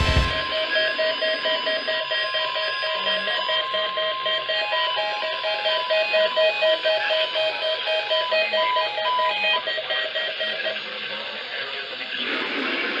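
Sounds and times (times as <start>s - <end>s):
weather radios beeping alert tones: 0.0s - 11.8s
radio speaker hiss: 8.6s - 13.0s.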